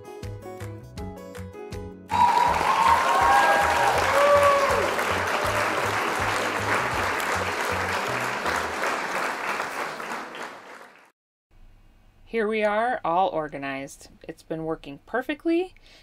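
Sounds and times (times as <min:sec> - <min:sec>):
whoops: 0:02.1 - 0:06.4
crowd cheering and applauding: 0:02.1 - 0:11.1.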